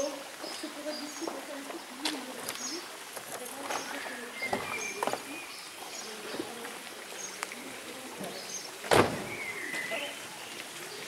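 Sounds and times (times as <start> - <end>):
small birds chirping: 0.0 - 11.0
street ambience: 0.0 - 11.0
sharp thump: 8.9 - 9.4.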